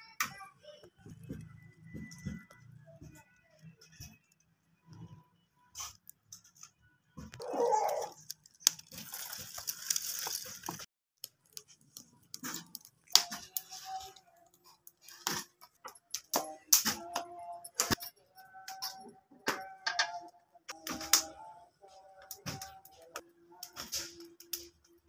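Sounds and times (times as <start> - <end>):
plastic bag rustling: 7.4 - 10.9.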